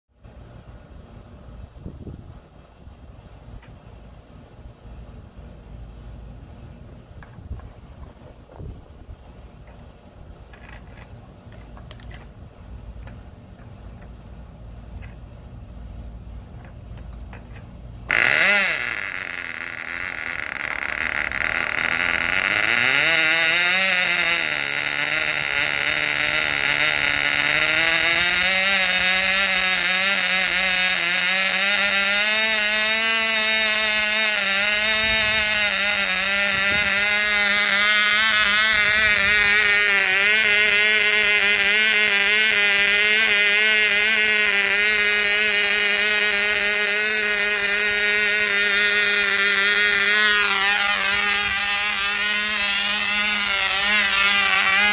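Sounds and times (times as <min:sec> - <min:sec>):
model airplane engine buzzing: 0:16.6 - 0:54.9.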